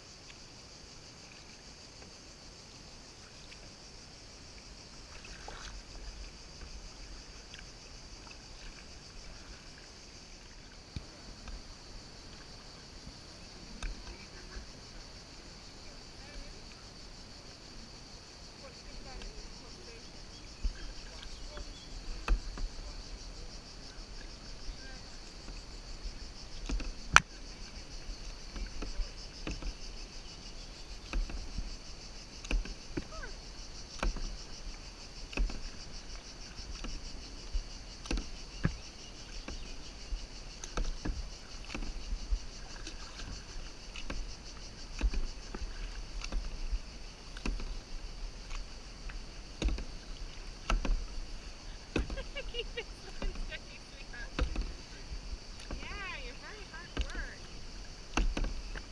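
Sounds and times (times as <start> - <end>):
high insect buzz: 0.0 - 58.9
paddle splashing in water: 0.1 - 58.9
paddle knocking on kayak: 18.7 - 58.9.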